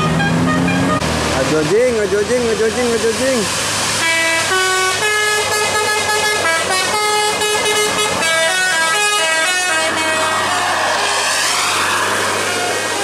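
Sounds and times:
musical air horn playing a tune: 0.0 - 1.1, 4.0 - 10.6
bus engine hum: 0.0 - 13.0.

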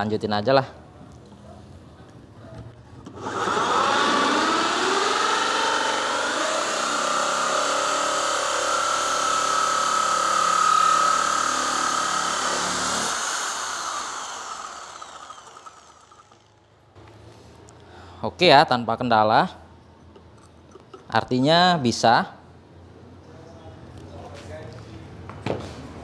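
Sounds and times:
electric drill cutting plywood: 3.1 - 16.5.

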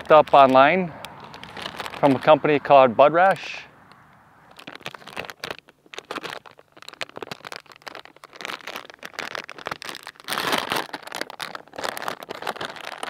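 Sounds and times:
plastic packaging crinkling: 0.0 - 3.6, 4.5 - 13.0.

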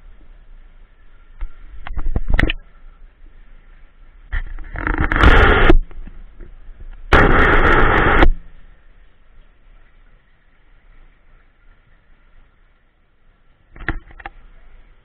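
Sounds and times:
faint steady hum: 0.0 - 15.0
muffled underwater rumbling bursts: 4.4 - 8.7.

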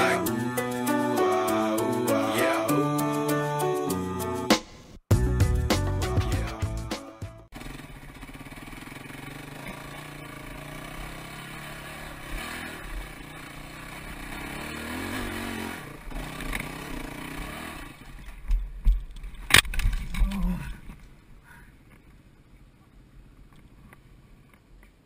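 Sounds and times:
dirt bike engine revving: 7.5 - 18.2
sharp crack: 19.2 - 20.4.

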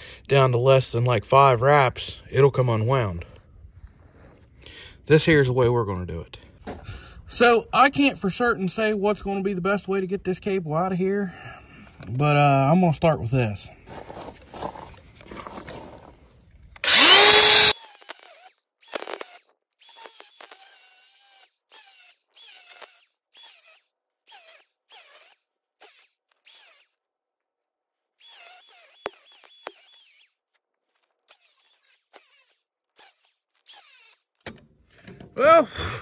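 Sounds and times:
angle grinder cutting steel: 16.8 - 27.0, 28.2 - 30.4, 31.2 - 34.3.

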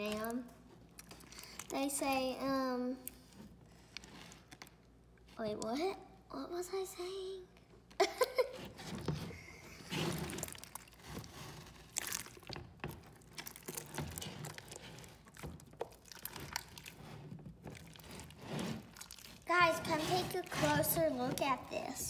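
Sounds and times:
hands squishing slime: 9.8 - 21.9.

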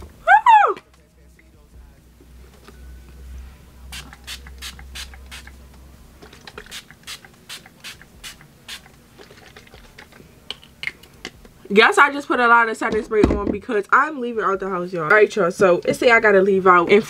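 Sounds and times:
spray bottle pump spraying: 3.9 - 5.6, 6.5 - 8.9.

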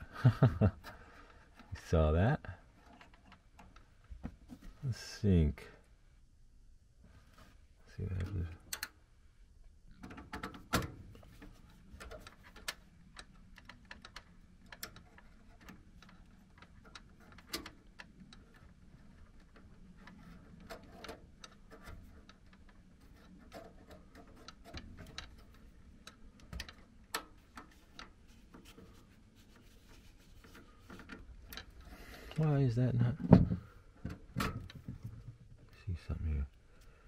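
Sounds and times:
wires and plug connectors handled: 10.0 - 35.4.

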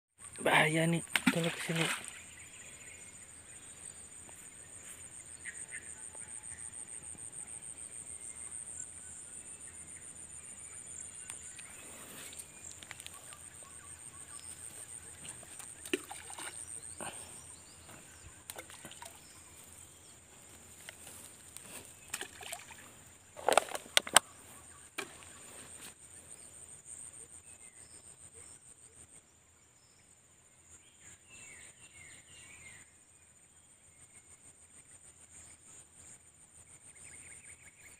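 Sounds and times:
insects trilling chorus: 0.2 - 28.6
small splashes: 1.0 - 2.3, 15.0 - 17.3, 18.4 - 19.4, 21.7 - 23.8.

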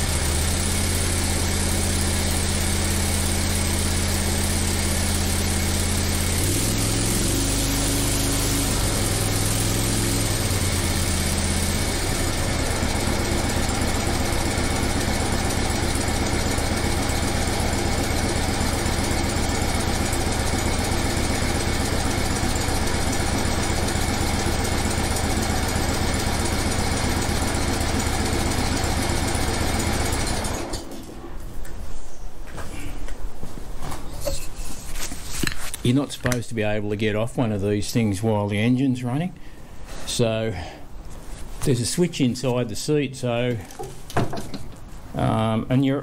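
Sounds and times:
ride-on mower engine running: 0.0 - 31.3.

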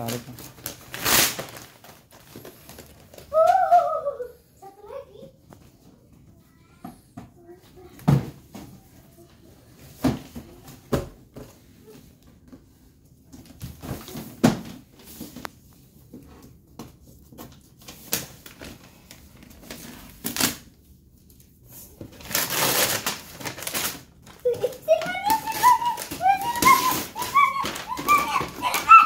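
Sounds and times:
wrapping paper tearing and crumpling: 0.0 - 4.2, 17.8 - 20.8, 21.4 - 29.0.

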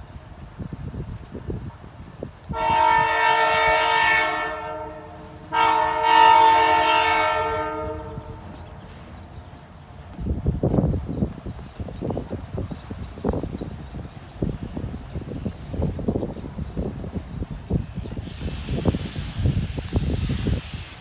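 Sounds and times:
locomotive low rumble: 0.0 - 21.0
locomotive air horn blasts: 2.5 - 8.6.

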